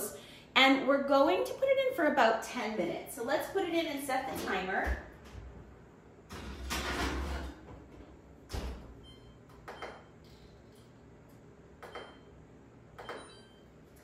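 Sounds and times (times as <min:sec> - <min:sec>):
oven high beeps: 0:09.0 - 0:10.2, 0:13.0 - 0:13.8.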